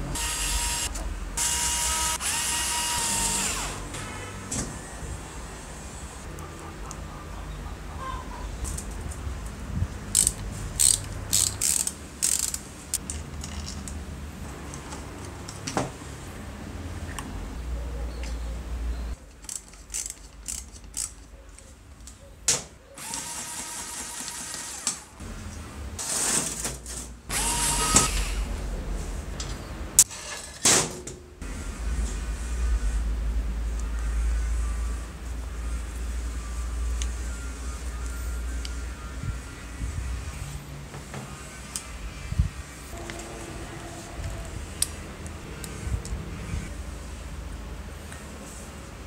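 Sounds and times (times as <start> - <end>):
metal parts and screwdriver clinking: 10.1 - 14.0, 19.3 - 21.8.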